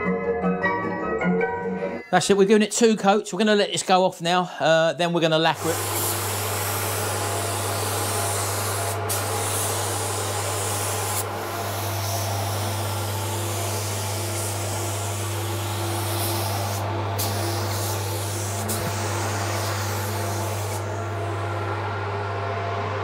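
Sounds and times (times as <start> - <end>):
spray gun hissing: 5.6 - 21.5
low hum: 16.6 - 23.0.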